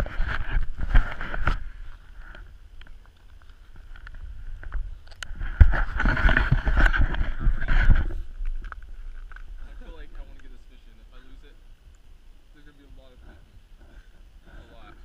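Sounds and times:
camera handling knocks and rubbing: 0.0 - 1.6, 3.8 - 9.5
low thumps and rustling: 0.0 - 10.6
wind buffeting microphone: 3.7 - 10.5.

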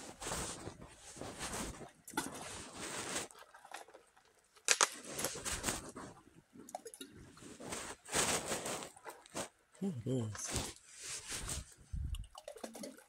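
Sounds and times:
microphone rubbing against jacket: 0.0 - 3.3, 7.4 - 12.2.

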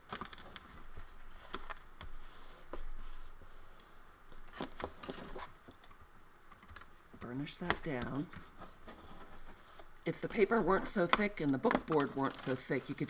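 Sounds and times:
tool and paper clicks: 10.3 - 13.0.

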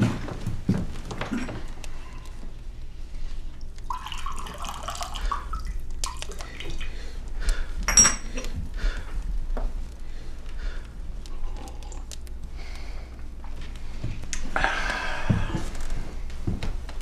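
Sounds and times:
liquid pouring into glass: 3.8 - 7.0
glass clinks: 7.9 - 8.4.

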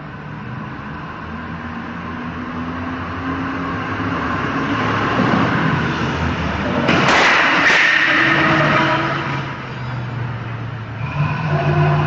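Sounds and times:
loud harsh noise: 6.9 - 9.6.

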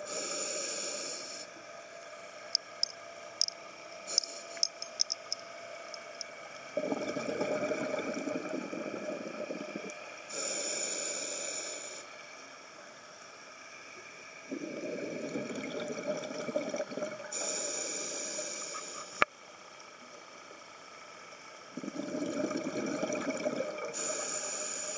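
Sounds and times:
hissing regulator inhalations: 0.0 - 1.5, 4.1 - 5.3, 6.8 - 12.1, 17.3 - 19.3, 23.8 - 24.9
bubbling diver exhalations: 6.8 - 10.0, 14.5 - 17.5, 21.8 - 24.3.

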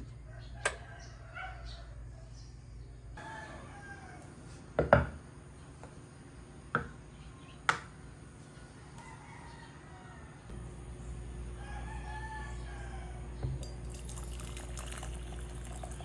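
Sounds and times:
distant rooster crowing: 0.0 - 4.8, 8.4 - 10.8, 11.4 - 13.8.

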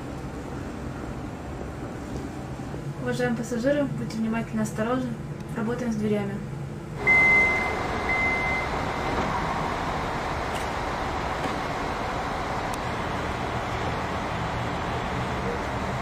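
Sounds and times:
high door-warning beep: 7.0 - 8.9
electric train standing noise: 7.0 - 16.0.

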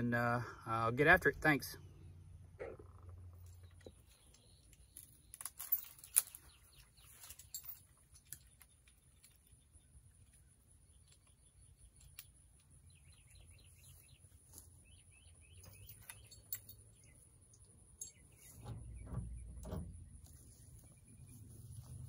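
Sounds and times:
faint bird chirping: 1.8 - 22.0
low thuds: 18.4 - 20.9.

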